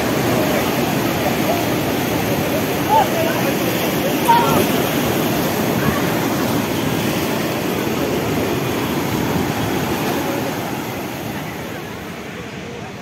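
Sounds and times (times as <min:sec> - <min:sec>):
surf washing over rocks: 0:00.0 - 0:13.0.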